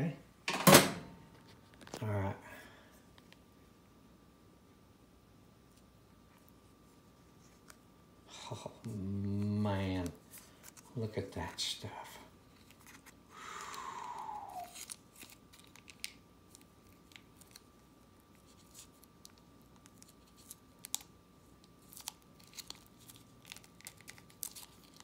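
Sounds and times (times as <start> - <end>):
plastic packet squeaking: 14.5 - 16.2, 21.8 - 25.0
plastic packet crinkling: 14.5 - 25.0.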